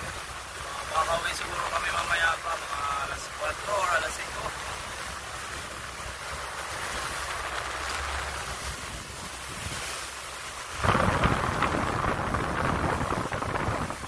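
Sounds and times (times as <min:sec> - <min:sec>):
low rumbling wind buffet: 0:00.0 - 0:14.0
water hissing: 0:00.0 - 0:14.0
wind rushing over microphone: 0:05.4 - 0:14.0.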